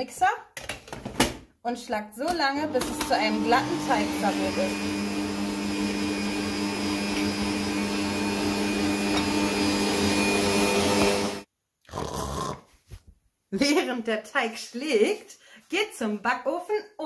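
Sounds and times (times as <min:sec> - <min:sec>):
stand mixer motor humming: 0:02.7 - 0:11.5.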